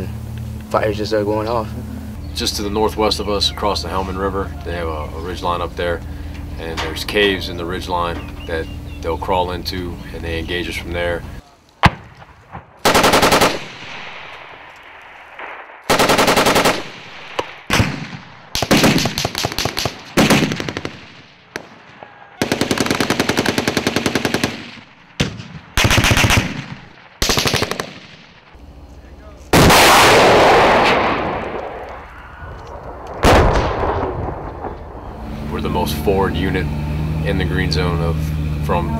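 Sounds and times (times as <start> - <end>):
heavy rumbling blast: 0.0 - 23.1, 29.5 - 38.9
machine-gun fire: 11.8 - 14.6, 15.4 - 28.5, 29.5 - 31.8, 33.2 - 34.9.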